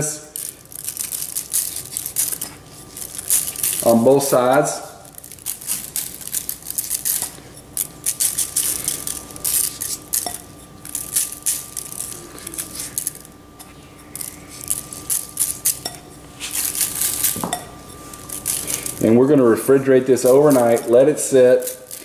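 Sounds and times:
dry rub ticking on foil pan: 0.4s - 13.3s, 14.0s - 19.0s.

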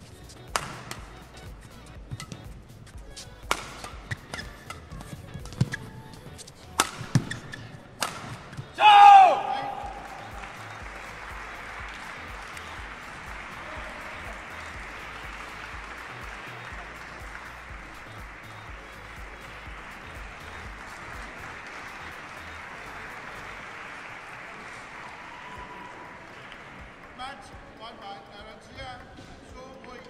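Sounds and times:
music playing: 0.0s - 30.0s
crowd applauding: 8.8s - 27.8s.

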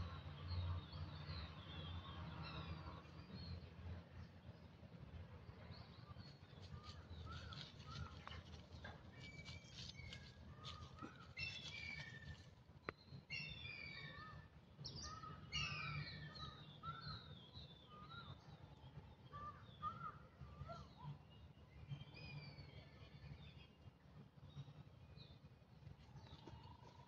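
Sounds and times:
birds chirping and whistling: 9.2s - 12.4s, 13.3s - 18.4s.

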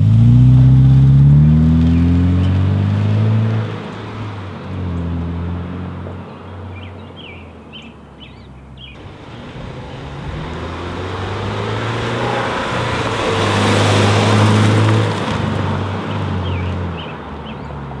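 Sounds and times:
car engine drone passing by: 0.0s - 18.0s
birds chirping: 6.2s - 12.6s, 15.9s - 18.0s.

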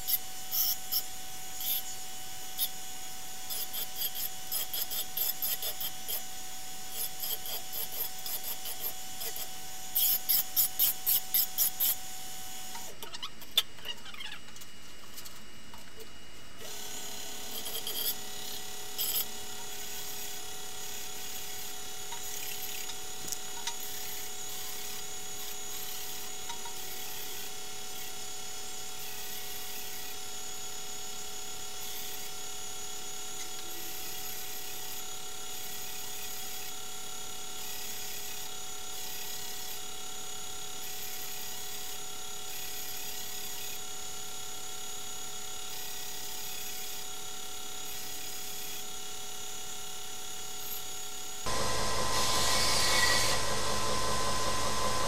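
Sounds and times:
belt grinder running: 0.0s - 12.9s, 16.6s - 28.1s, 45.7s - 55.0s
metal grinding on belt: 17.4s - 18.3s.

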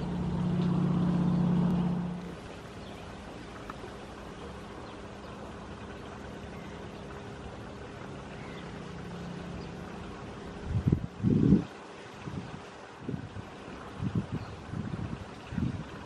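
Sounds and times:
propeller plane droning past: 0.0s - 10.6s
wind hitting microphone: 10.5s - 16.0s.

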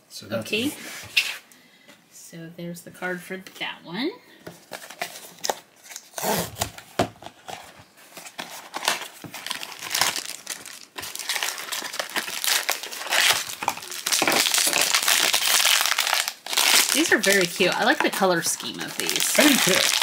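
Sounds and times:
cardboard box rustling: 4.6s - 16.1s
foil bag crinkling: 7.5s - 20.0s.

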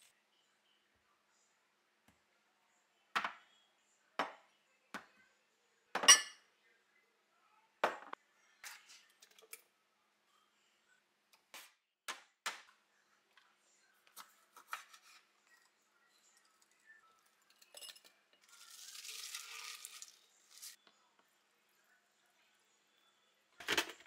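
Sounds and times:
items knocking on marble countertop: 7.8s - 8.2s.

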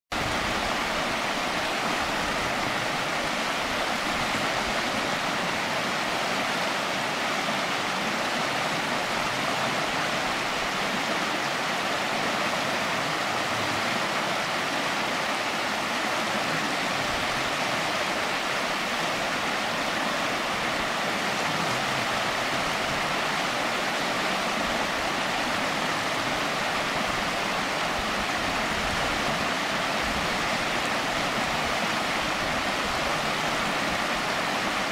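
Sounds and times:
river water rushing over rocks: 0.1s - 34.9s.

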